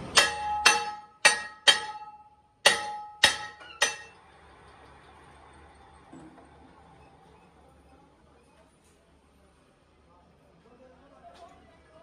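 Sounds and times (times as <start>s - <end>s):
hammer striking ringing steel rim: 0.0s - 4.3s.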